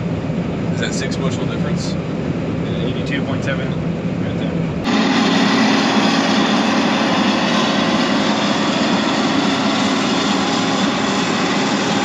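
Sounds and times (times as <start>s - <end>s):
combine harvester running: 3.9s - 12.0s.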